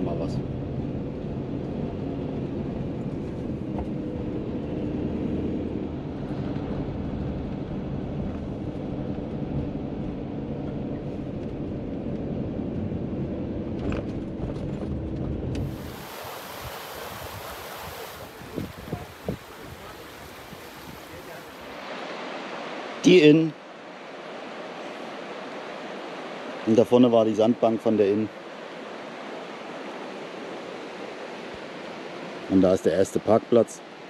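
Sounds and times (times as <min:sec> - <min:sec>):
engine and road rumble: 0:00.0 - 0:16.3
steady rushing hiss: 0:15.6 - 0:34.0.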